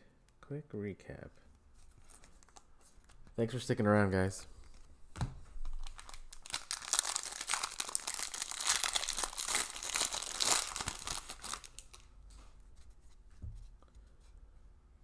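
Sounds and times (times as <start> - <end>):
wrapper tearing and crinkling: 5.6 - 12.0.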